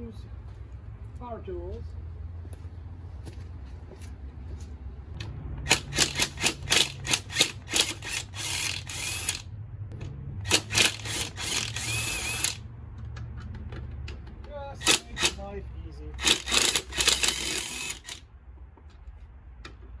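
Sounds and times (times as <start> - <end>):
cordless power driver: 5.7 - 9.4, 10.5 - 12.6, 16.2 - 18.2.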